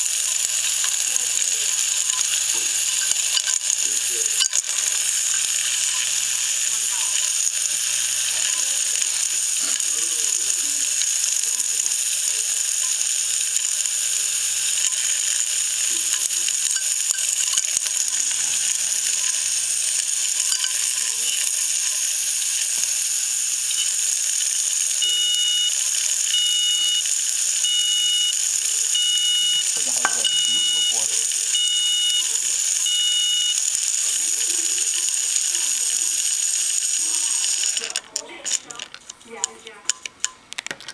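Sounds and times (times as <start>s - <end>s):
hard drive whining: 0.0s - 40.6s
short high beeps: 29.0s - 31.0s.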